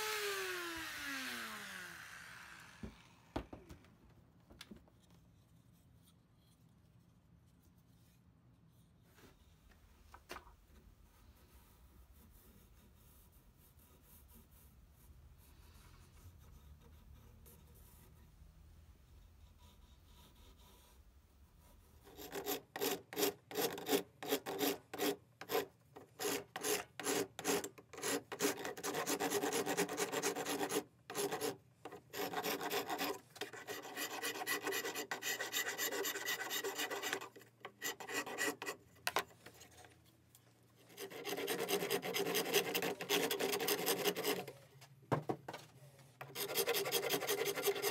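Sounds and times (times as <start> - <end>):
hand file rasping wood: 22.0 - 38.8, 40.9 - 44.6, 46.2 - 47.9.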